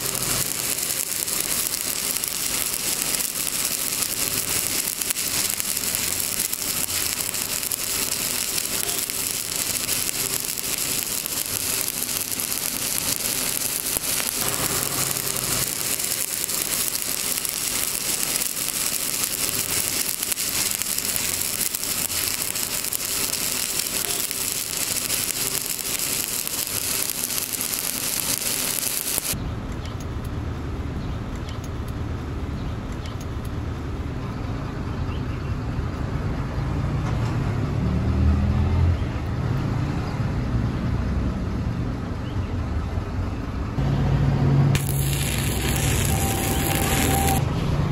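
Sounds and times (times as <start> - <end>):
arc welding crackling hiss: 0.0 - 29.4, 44.8 - 47.4.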